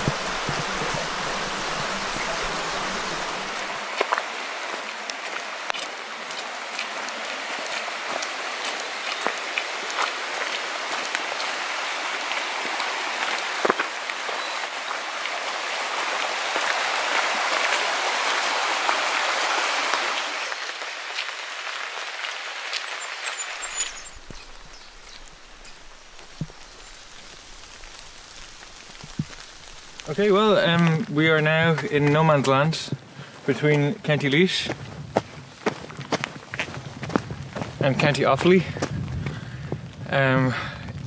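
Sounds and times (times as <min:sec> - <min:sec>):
raindrops ticking: 0:00.0 - 0:11.6, 0:20.0 - 0:32.6
rain falling: 0:00.0 - 0:41.0.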